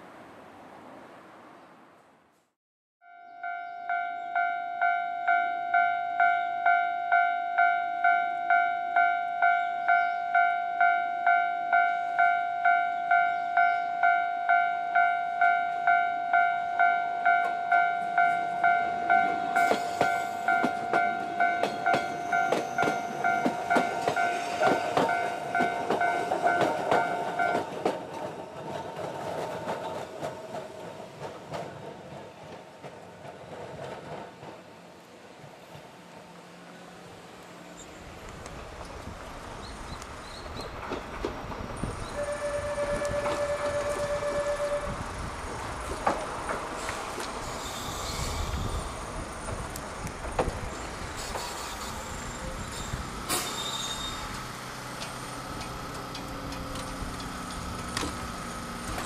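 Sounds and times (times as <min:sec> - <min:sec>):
level crossing warning bell: 0:03.0 - 0:27.8, 0:42.2 - 0:45.0.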